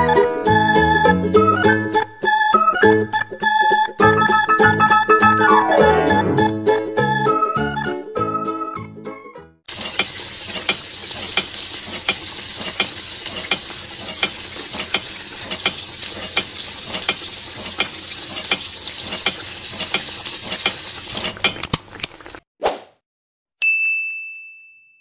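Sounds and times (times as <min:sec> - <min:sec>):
food sizzling in a frying pan: 0:09.7 - 0:22.4
spatula clicking against pan: 0:10.0 - 0:20.8.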